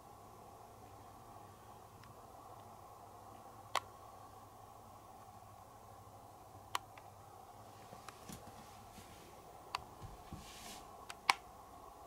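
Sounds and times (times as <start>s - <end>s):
faint steady hum: 0.0s - 12.0s
soft rustle: 7.6s - 11.0s.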